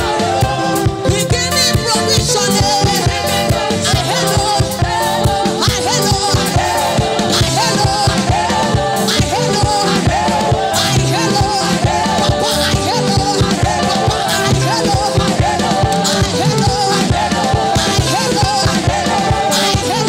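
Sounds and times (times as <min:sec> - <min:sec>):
fast drum beat: 0:00.0 - 0:20.0
people singing: 0:00.0 - 0:20.0.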